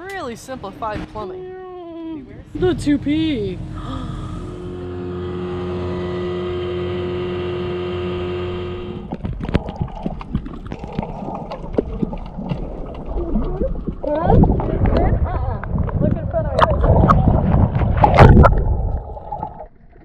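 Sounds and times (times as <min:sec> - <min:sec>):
outboard motor running: 0:02.5 - 0:13.1
underwater clicks and knocks: 0:09.0 - 0:20.0.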